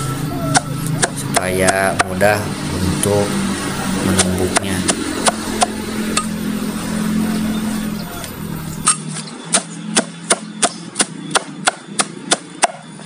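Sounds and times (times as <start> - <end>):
machete chopping stems: 0.5 - 2.2, 8.8 - 12.8.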